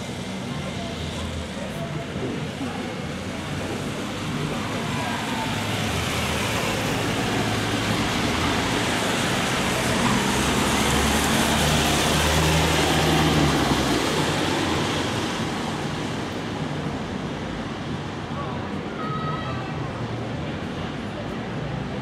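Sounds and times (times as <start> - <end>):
road traffic: 0.0 - 22.0.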